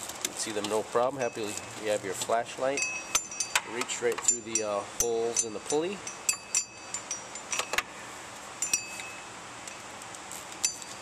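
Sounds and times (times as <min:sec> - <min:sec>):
ratchet and socket clinking on metal: 0:00.6 - 0:01.9, 0:02.6 - 0:07.9, 0:08.6 - 0:11.0.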